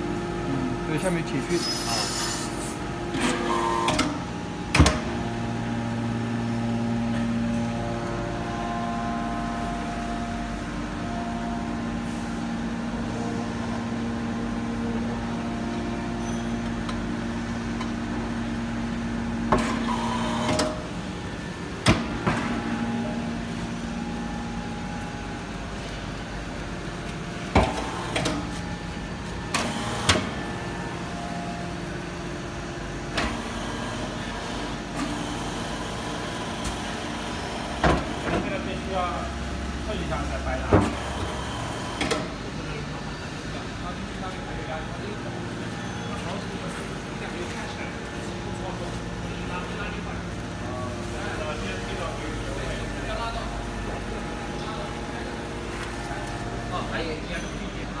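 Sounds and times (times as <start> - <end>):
hydraulic motor and pump hum: 0.0 - 58.0.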